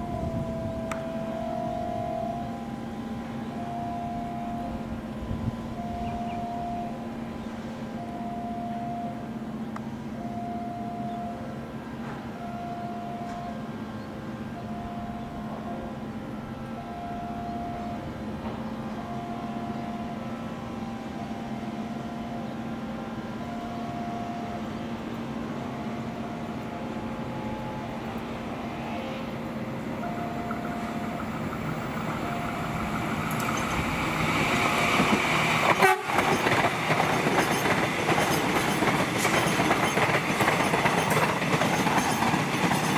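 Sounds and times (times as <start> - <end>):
short beeping tone: 0.0 - 7.0, 30.0 - 31.3
electric train hum: 0.0 - 42.9
train wheels on rails: 11.0 - 42.9.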